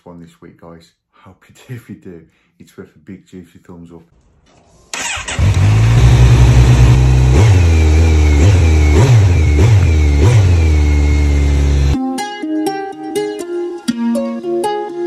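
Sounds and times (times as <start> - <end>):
motorcycle throttle blips: 5.0 - 12.0.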